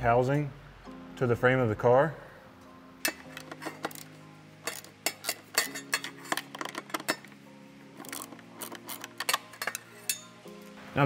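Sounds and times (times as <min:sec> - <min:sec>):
ratchet clicking: 0:08.0 - 0:10.2.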